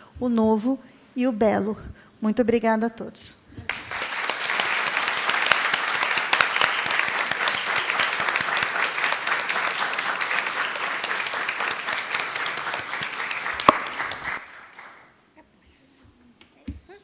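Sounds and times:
audience applauding: 3.7s - 15.2s.

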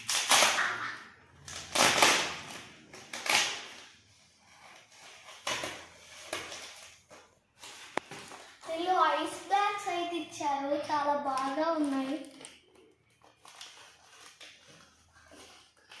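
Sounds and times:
foil pouch crinkling: 11.5s - 16.0s.

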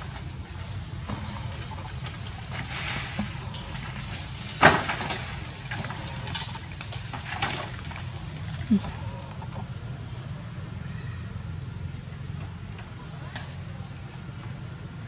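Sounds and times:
leaves and branches rustling: 0.0s - 9.8s.

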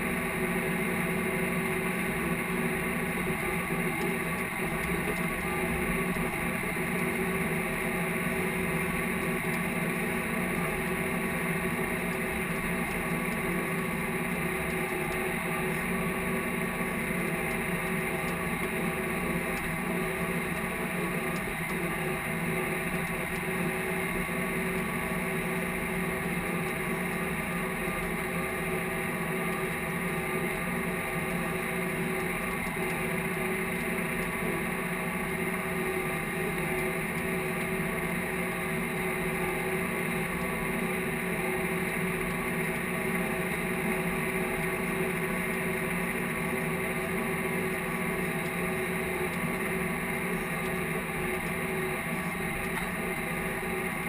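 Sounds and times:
tractor diesel engine drone: 0.0s - 54.0s.

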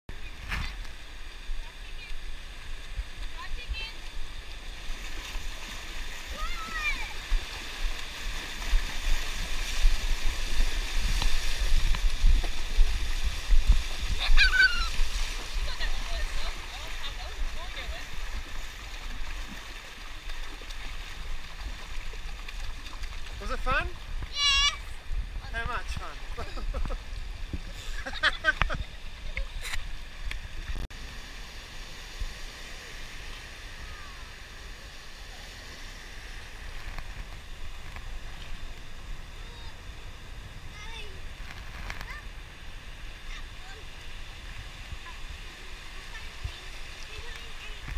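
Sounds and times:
small waves breaking: 0.1s - 47.9s
surf washing in: 0.1s - 47.9s
wind buffeting camera: 6.2s - 19.7s
child squealing: 14.2s - 15.0s, 24.3s - 24.9s.

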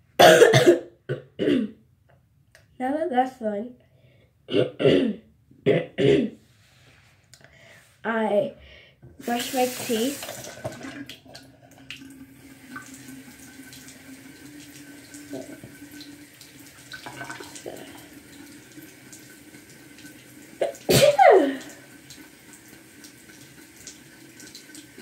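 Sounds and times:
faucet running: 9.2s - 25.0s
person sneezing: 20.6s - 21.8s.

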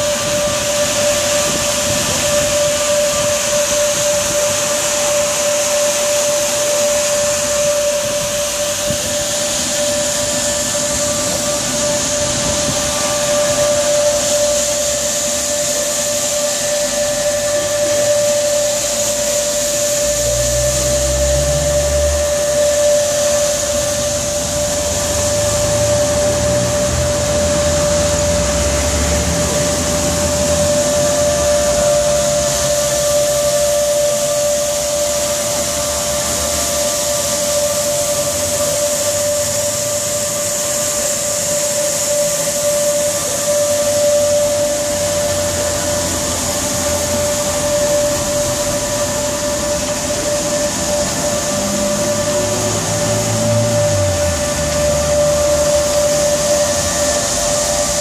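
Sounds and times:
carpet washing machine whining: 0.0s - 58.0s.

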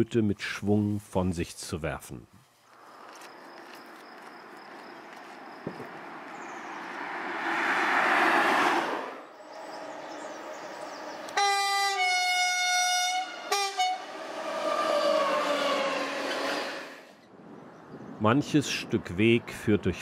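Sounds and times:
rushing passing noise: 4.7s - 10.8s
freight train rumbling past: 6.9s - 17.2s
train horn blasts: 11.4s - 17.0s.

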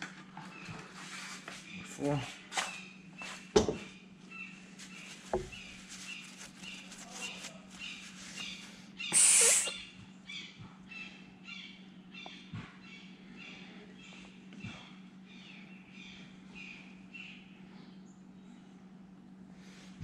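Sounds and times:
steady low hum: 0.0s - 20.0s
loud short hiss: 9.1s - 9.8s.

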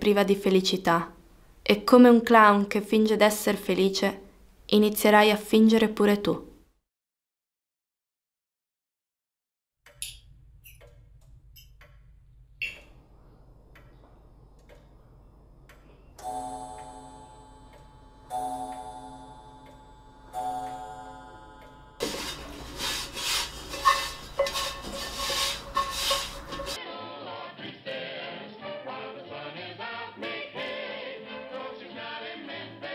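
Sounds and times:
chime-like notes ringing: 16.2s - 22.0s.

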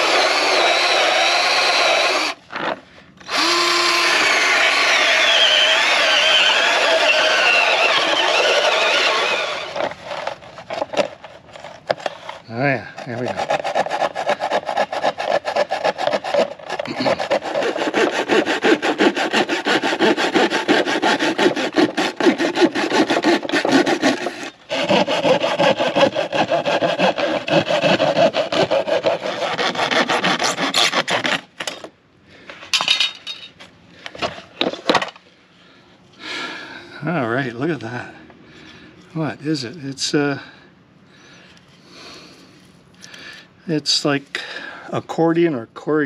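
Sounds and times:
saw cutting through panel: 0.0s - 11.1s, 13.0s - 31.5s.

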